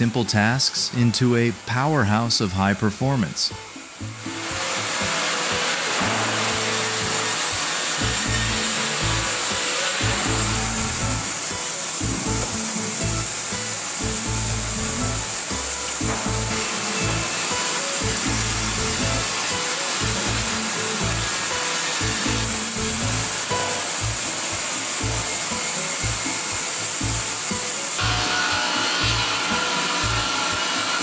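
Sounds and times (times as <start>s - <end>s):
sawmill machinery whirring: 0.0s - 31.0s
background music with pulsing bass: 10.0s - 11.4s, 12.0s - 13.4s, 14.0s - 19.4s, 22.0s - 24.4s.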